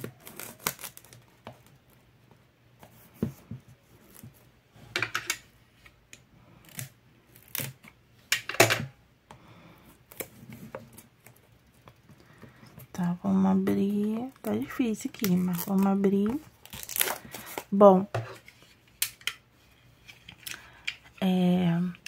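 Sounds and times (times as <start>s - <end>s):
plastic wrap crinkling: 0.0s - 1.8s, 12.9s - 17.8s.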